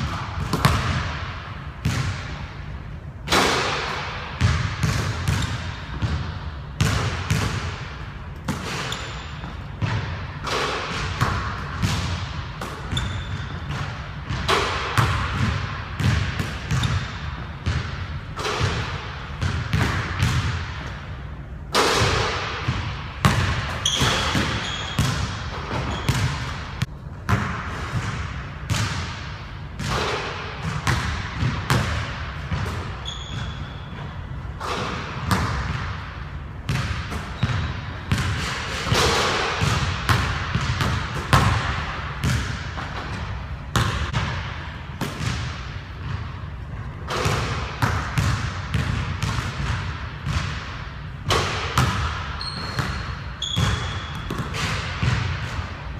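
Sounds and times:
basketball bouncing on wooden floor: 0:00.0 - 0:02.3, 0:04.4 - 0:07.8, 0:08.4 - 0:20.9, 0:22.0 - 0:36.0, 0:36.7 - 0:46.4, 0:47.1 - 0:50.7, 0:51.3 - 0:55.7.

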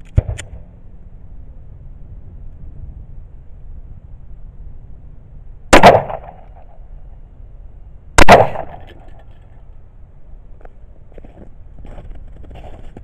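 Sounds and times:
pistol shots with echo: 0:05.7 - 0:06.7, 0:08.2 - 0:08.9.

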